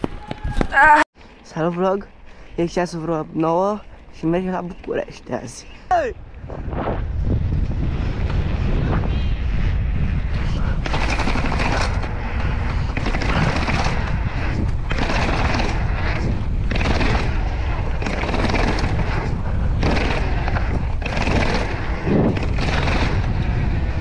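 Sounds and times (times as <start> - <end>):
wind buffeting microphone: 0.0 - 1.0, 4.3 - 24.0
bicycle tyres rolling over paving: 7.0 - 24.0.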